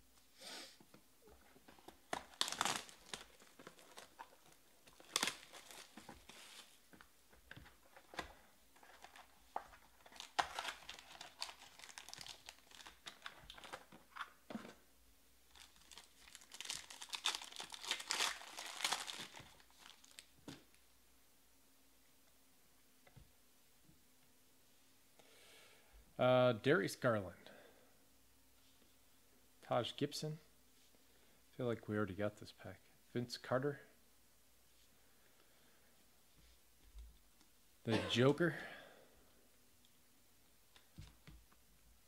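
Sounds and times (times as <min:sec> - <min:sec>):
wrapper crinkling and tearing: 0:01.7 - 0:06.7, 0:07.9 - 0:14.3, 0:15.5 - 0:20.6.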